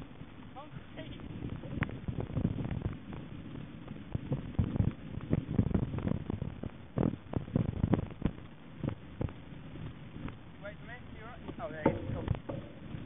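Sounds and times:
tyre rumble: 0:00.0 - 0:13.0
wind: 0:00.0 - 0:13.0
bike knocks and thumps: 0:11.5 - 0:13.0.

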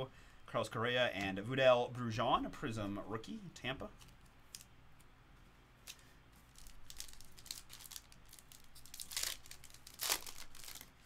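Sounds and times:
foil wrapper tearing and crinkling: 0:06.5 - 0:11.0.

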